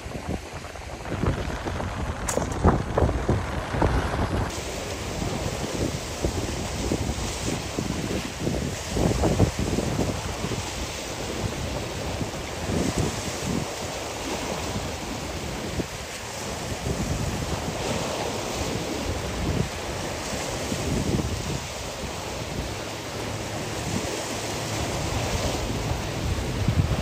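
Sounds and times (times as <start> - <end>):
choppy sea waves: 0.0 - 27.0
wind buffeting microphone: 0.0 - 27.0.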